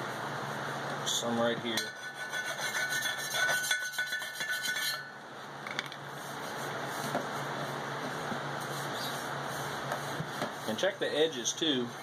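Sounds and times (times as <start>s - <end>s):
file rasping on steel: 1.8s - 5.1s.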